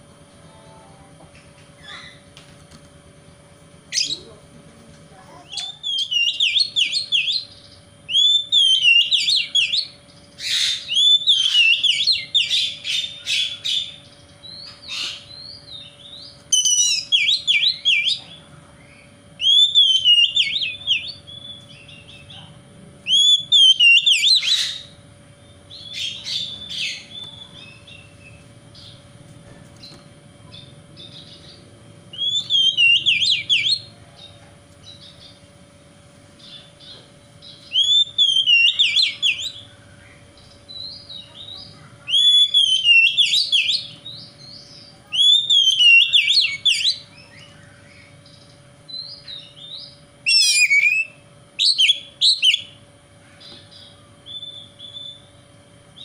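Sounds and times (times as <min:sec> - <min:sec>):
faint steady hum: 0:00.0 - 0:56.0
bird singing whistled phrases: 0:05.5 - 0:18.2, 0:18.9 - 0:22.3, 0:23.1 - 0:24.9, 0:32.1 - 0:33.9, 0:37.4 - 0:39.6, 0:40.7 - 0:48.1, 0:48.9 - 0:52.8, 0:53.7 - 0:55.3.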